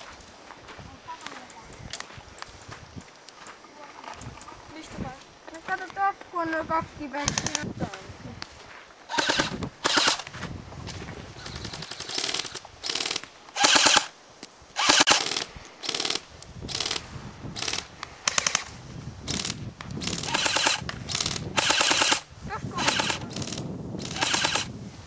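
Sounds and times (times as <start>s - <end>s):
airsoft rifles firing bursts: 9.1s - 10.3s, 11.6s - 14.1s, 14.8s - 17.0s, 17.6s - 18.7s, 19.3s - 24.7s.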